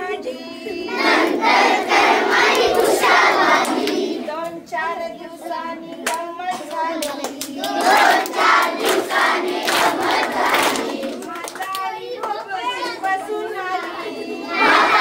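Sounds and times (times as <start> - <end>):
woman singing: 0.0 - 1.1, 4.2 - 7.6, 11.0 - 14.5
children singing: 0.0 - 11.3, 11.9 - 15.0
hand claps: 5.9 - 13.2.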